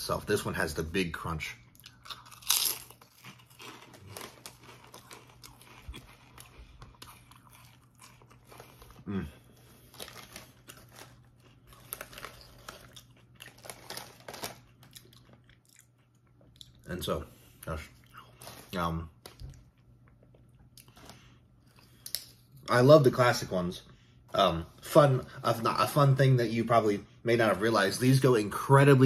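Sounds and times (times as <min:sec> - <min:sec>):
chewing and crunching: 0:01.7 - 0:22.5
chip bag crinkling: 0:01.9 - 0:15.8, 0:18.2 - 0:19.7.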